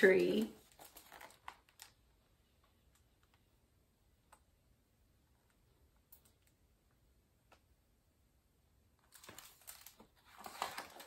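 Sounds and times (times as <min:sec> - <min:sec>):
book pages rustling: 0:00.0 - 0:02.1, 0:09.1 - 0:11.0.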